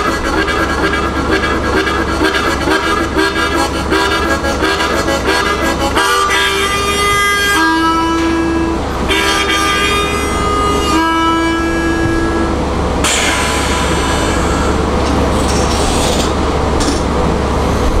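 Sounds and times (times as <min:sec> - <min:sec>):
harmonica imitating a train: 0:00.0 - 0:15.2.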